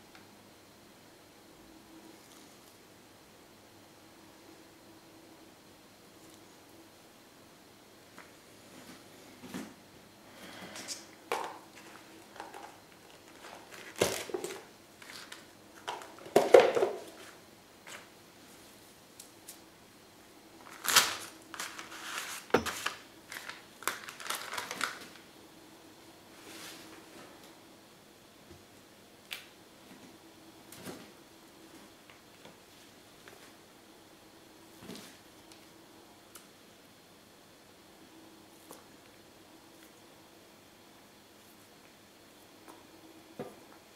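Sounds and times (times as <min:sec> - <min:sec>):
knocks and rustles of handling: 0:11.3 - 0:18.1, 0:20.7 - 0:25.2.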